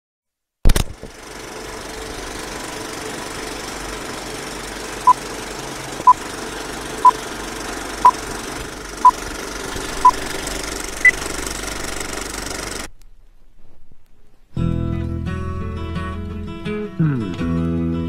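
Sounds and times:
film projector rattling: 0.7 - 12.9.

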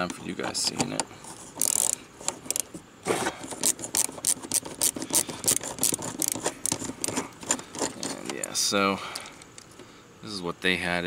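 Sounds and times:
screwdriver scraping clicks: 3.5 - 8.5.

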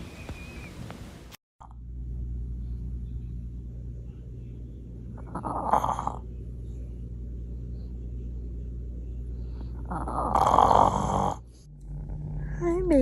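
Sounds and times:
low steady rumble: 0.1 - 13.0
dog snoring: 5.2 - 6.2, 9.6 - 12.8.

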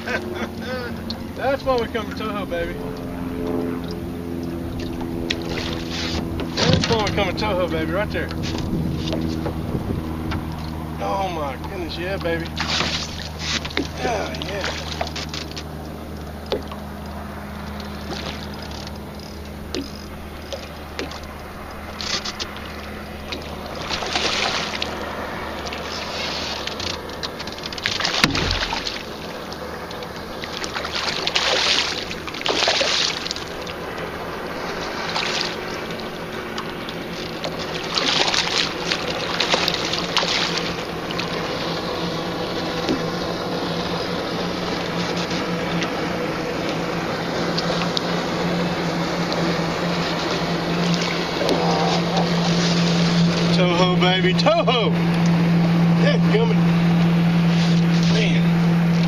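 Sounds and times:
low hum: 0.0 - 59.0
fish splashing in water: 3.0 - 7.2, 11.6 - 53.6.

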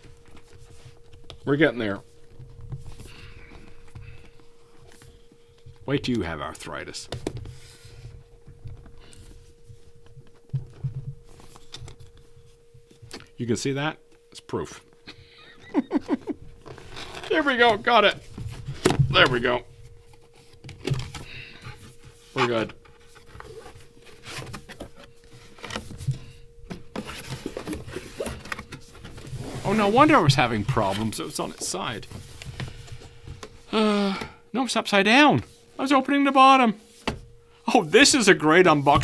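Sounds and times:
faint steady hum: 0.0 - 39.0
cardboard flaps scraping and tapping: 21.8 - 31.2.

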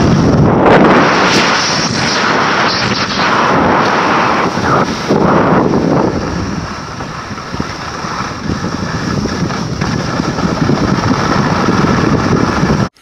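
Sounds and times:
skis scraping on snow: 0.0 - 13.0
wind rushing over microphone: 0.0 - 13.0.

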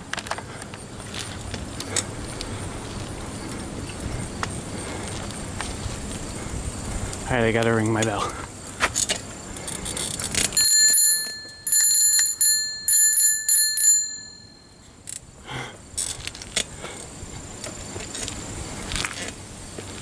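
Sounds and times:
bicycle bell ringing: 10.6 - 14.9.

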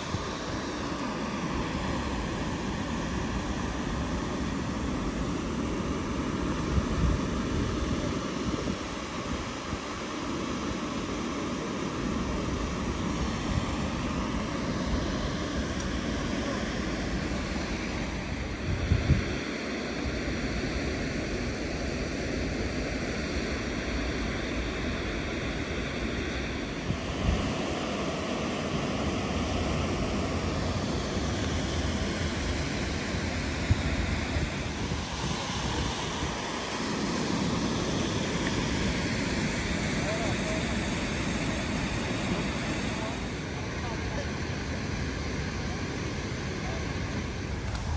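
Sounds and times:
wind on microphone: 0.0 - 10.8, 12.2 - 19.6, 25.8 - 44.2, 47.0 - 47.9
spillway water cascading: 0.0 - 47.9.

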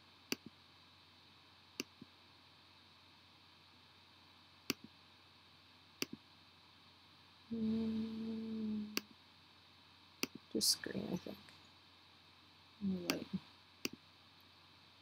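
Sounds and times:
faint steady hiss: 0.0 - 15.0
computer mouse clicks: 1.8 - 2.1, 6.0 - 6.2, 10.2 - 10.4.

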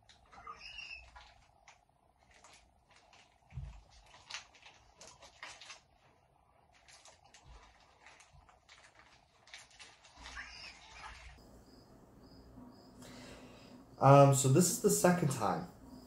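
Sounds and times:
chewing and crunching snack: 0.0 - 11.4.

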